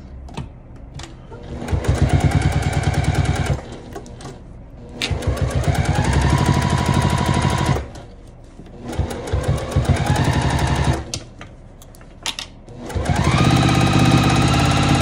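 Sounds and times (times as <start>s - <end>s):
sewing machine stitching: 1.3s - 8.1s, 8.7s - 11.1s, 12.7s - 15.0s.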